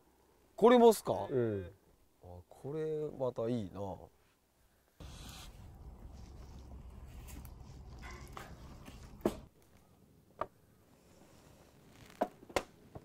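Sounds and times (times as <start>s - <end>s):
wood fire crackling: 5.0s - 9.8s.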